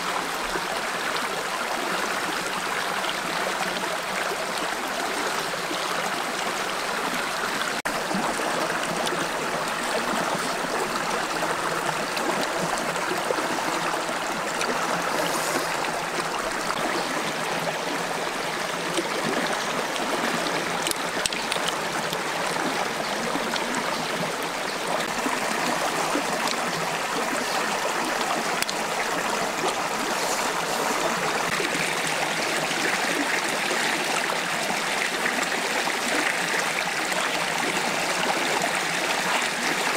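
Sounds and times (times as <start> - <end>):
stream flowing: 0.0 - 39.9.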